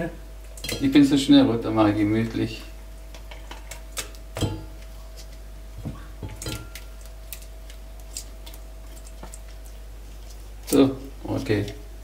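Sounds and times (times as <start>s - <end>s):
faint steady hum: 0.0s - 12.0s
dishes and utensils clinking: 0.6s - 1.0s.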